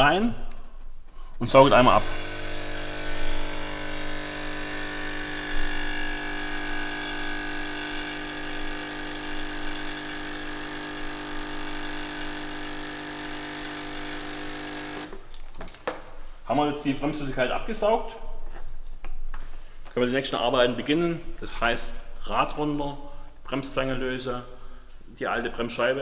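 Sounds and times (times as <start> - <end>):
suction pump motor humming: 1.6 - 15.2.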